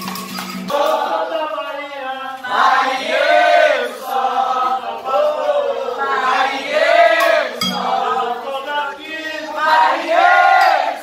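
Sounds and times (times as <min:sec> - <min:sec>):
group of voices chanting unaccompanied: 0:02.4 - 0:11.0.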